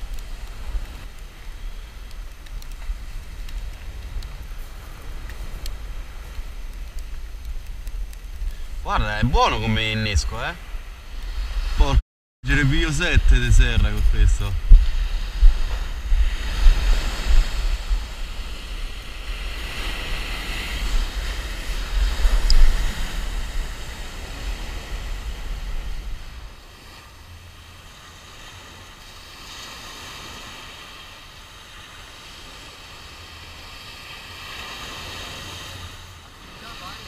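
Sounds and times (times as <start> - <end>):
wind buffeting microphone: 0.0 - 27.4
waves breaking on pebble beach: 0.0 - 37.0.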